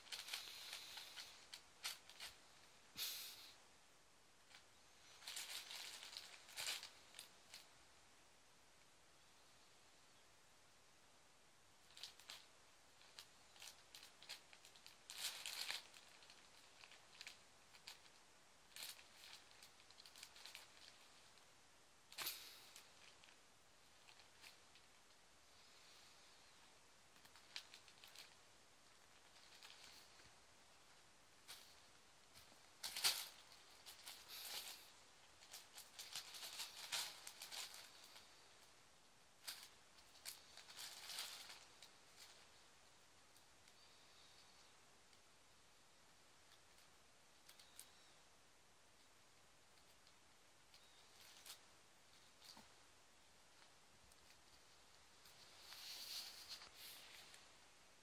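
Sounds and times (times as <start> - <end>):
kitten paws rustling and scratching: 0.0 - 2.4, 4.5 - 7.7, 11.9 - 21.4, 27.2 - 30.4, 31.4 - 38.4, 39.4 - 42.7, 53.6 - 57.6
plastic bag crinkling: 0.0 - 2.4, 4.5 - 7.7, 11.9 - 21.4, 22.1 - 25.2, 27.1 - 38.4, 39.4 - 42.7.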